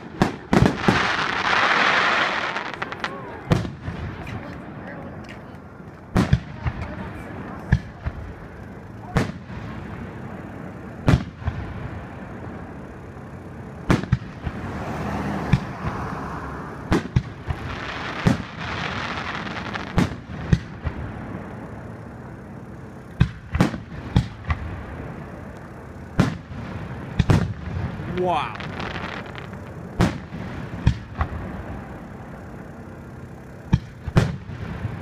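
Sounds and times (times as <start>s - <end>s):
firework shells booming: 0.0s - 4.8s, 5.9s - 10.4s, 11.0s - 12.6s, 13.8s - 14.8s, 15.4s - 16.1s, 16.8s - 21.5s, 23.1s - 25.3s, 26.1s - 31.9s, 33.6s - 35.0s
crackling firework hiss: 0.0s - 35.0s.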